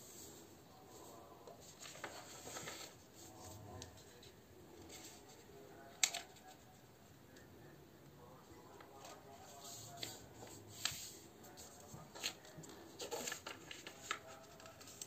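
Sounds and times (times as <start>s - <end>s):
paper rustling: 1.0s - 6.7s, 8.7s - 15.0s.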